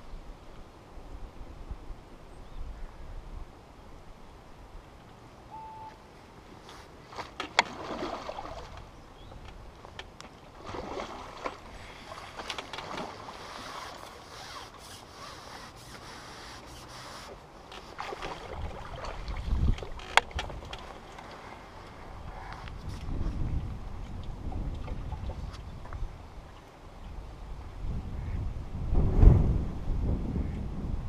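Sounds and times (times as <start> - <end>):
water splashing and sloshing: 6.4 - 26.9.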